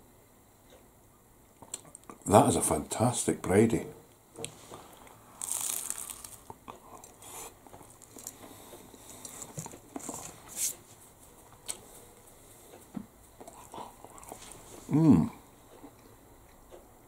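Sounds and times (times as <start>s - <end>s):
chewing crunches and crackles: 4.7s - 10.5s, 13.4s - 14.8s
crunchy pastry being bitten: 5.0s - 10.4s.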